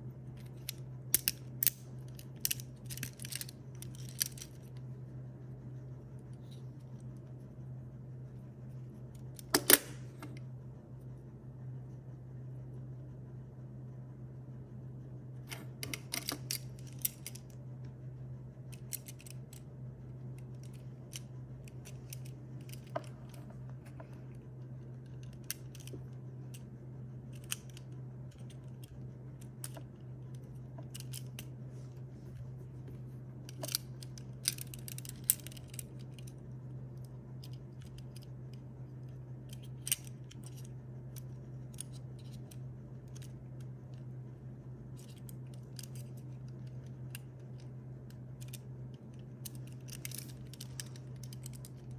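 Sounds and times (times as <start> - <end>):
steady low hum: 0.0 - 51.9
plastic pieces clicking: 0.4 - 4.7, 18.7 - 19.6, 25.1 - 26.0, 28.4 - 31.5, 33.5 - 36.4, 45.0 - 51.9.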